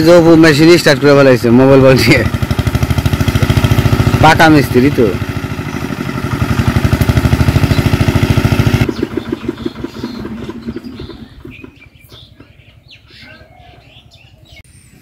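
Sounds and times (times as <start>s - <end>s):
small engine running: 0.0s - 12.3s.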